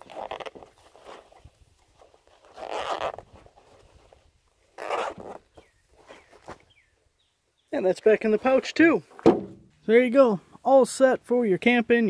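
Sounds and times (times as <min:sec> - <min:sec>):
zipper rasping shut: 0:00.0 - 0:01.4, 0:02.2 - 0:04.1, 0:04.7 - 0:05.5.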